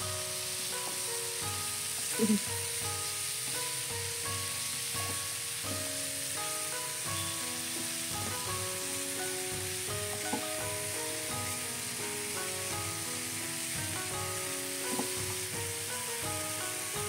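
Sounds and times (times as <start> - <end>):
background music with held notes: 0.0 - 17.0
food sizzling in a wok: 0.0 - 17.0
sharp knocks: 9.5 - 10.7, 14.9 - 15.6.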